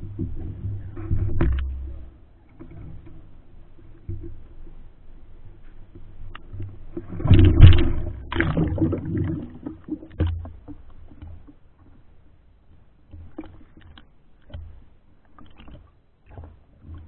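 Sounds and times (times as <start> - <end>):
water sloshing: 0.0 - 12.2, 13.1 - 17.0
splash and bubbling water: 6.9 - 10.4.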